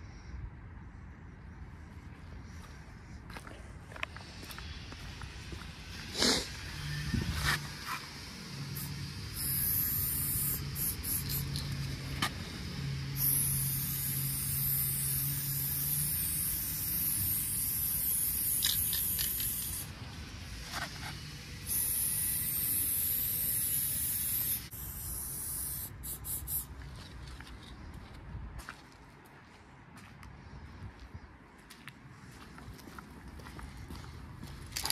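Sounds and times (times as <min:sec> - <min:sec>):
spray paint can hissing: 0:04.3 - 0:06.6, 0:07.4 - 0:27.1.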